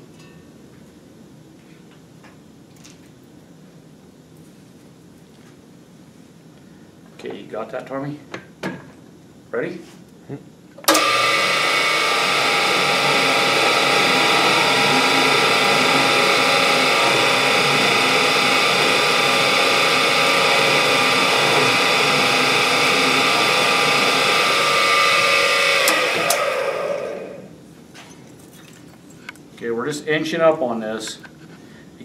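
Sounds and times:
drill click: 0:10.8 - 0:27.5
drill whining cutting steel: 0:10.9 - 0:27.5.

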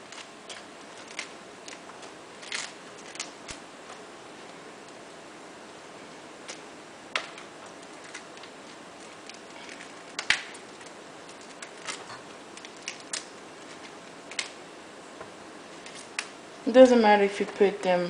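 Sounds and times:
cauliflower florets snapping: 0:09.1 - 0:12.0.

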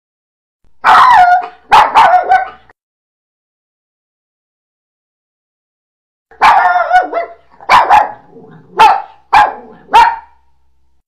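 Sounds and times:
dog barking: 0:00.8 - 0:02.7, 0:06.3 - 0:10.5.

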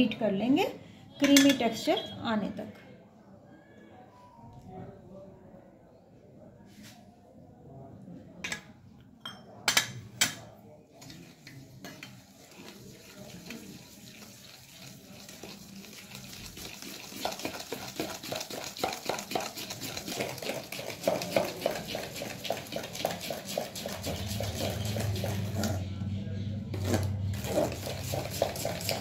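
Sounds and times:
metal spoon beating in steel bowl: 0:01.2 - 0:01.8, 0:11.8 - 0:25.8, 0:26.7 - 0:29.0.

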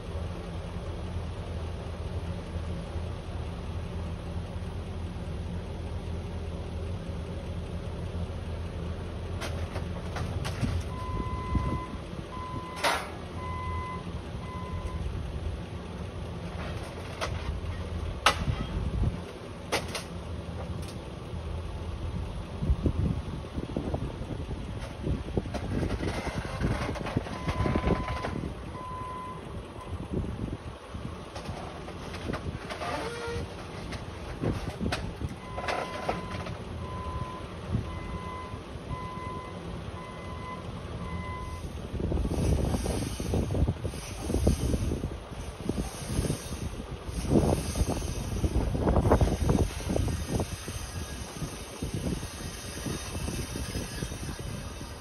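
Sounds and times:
forklift engine running: 0:00.0 - 0:55.0
reversing alarm beeping: 0:10.9 - 0:15.1, 0:27.3 - 0:29.9, 0:35.4 - 0:41.7.

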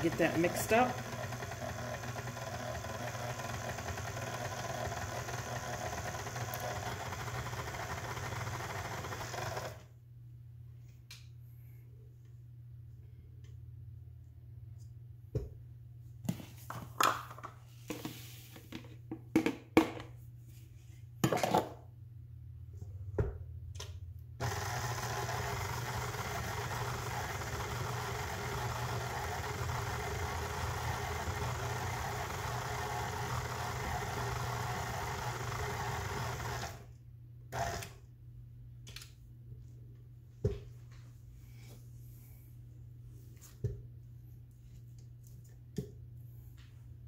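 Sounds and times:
stand mixer running: 0:00.0 - 0:09.9, 0:24.4 - 0:36.9, 0:37.6 - 0:38.0.

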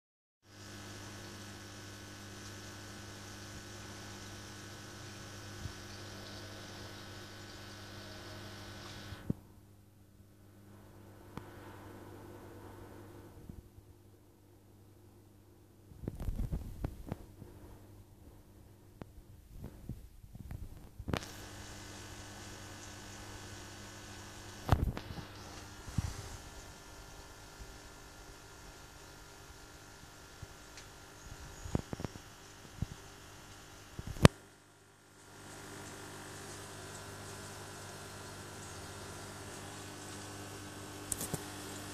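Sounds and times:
air pump humming: 0:00.4 - 0:09.4, 0:19.5 - 0:41.9
air bubbles hissing: 0:21.1 - 0:33.1, 0:35.2 - 0:41.9.

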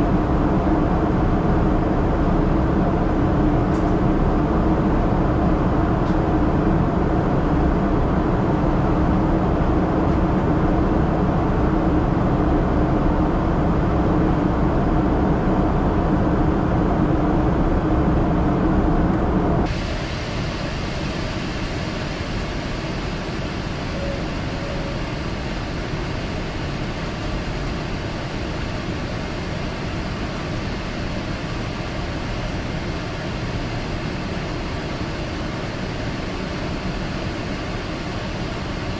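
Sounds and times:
jet engine drone in cabin: 0:00.0 - 0:38.9
low hum: 0:00.0 - 0:38.9
rushing air: 0:19.5 - 0:38.9.

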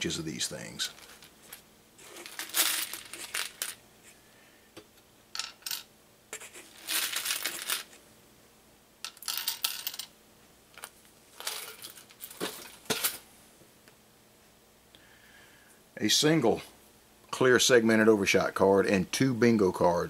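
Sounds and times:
small parts rattling and clicking: 0:00.9 - 0:03.8, 0:06.6 - 0:08.0, 0:10.7 - 0:13.2.

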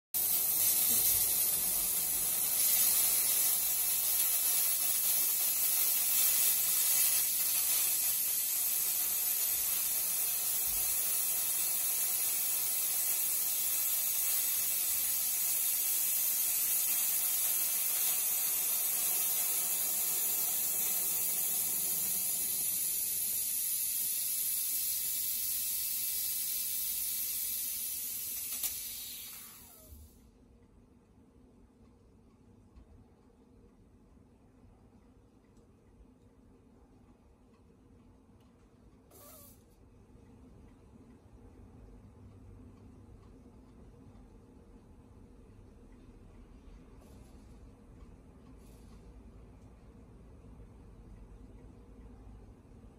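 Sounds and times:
steam cleaner hissing: 0:00.2 - 0:30.2.

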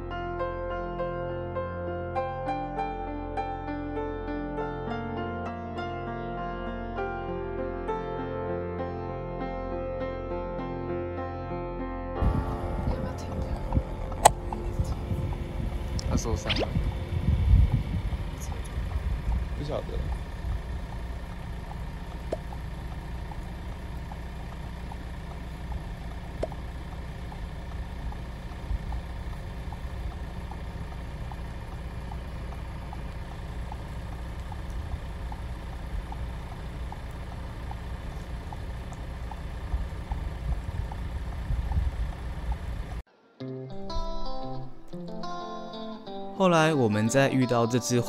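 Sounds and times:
faint even ticking: 0:12.2 - 0:43.0
car engine idling: 0:12.2 - 0:43.1.

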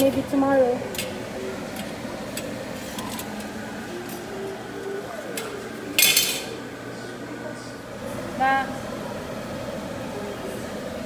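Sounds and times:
pots clinking: 0:05.3 - 0:06.7.

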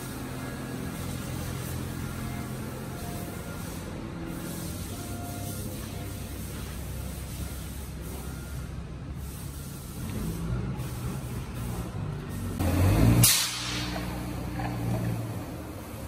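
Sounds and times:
low mechanical hum: 0:00.0 - 0:16.0
burst of hiss: 0:09.2 - 0:14.3.

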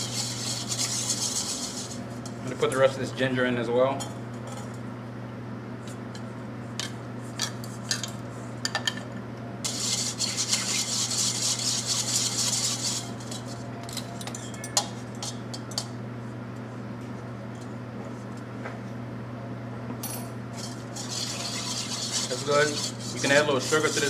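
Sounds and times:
whisk rattling in metal bowl: 0:00.0 - 0:02.0, 0:09.7 - 0:13.5, 0:20.5 - 0:24.0.

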